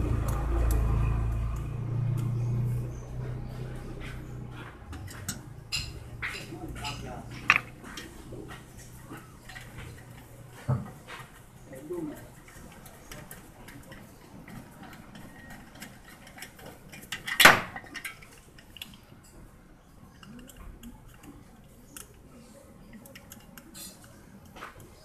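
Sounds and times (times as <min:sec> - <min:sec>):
metal tools clicking and clinking: 0:12.4 - 0:19.1.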